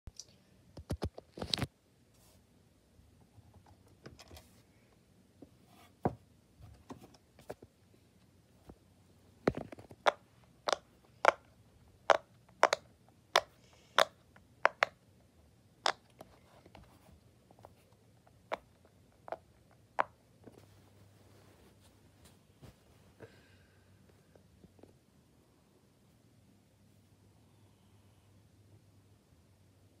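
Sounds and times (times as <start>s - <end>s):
pop-it toy popping: 9.5s - 11.4s, 12.1s - 15.0s.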